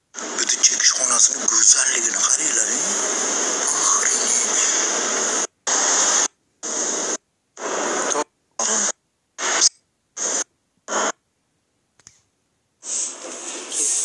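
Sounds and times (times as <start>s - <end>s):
hiss-like noise bursts: 12.8s - 14.0s.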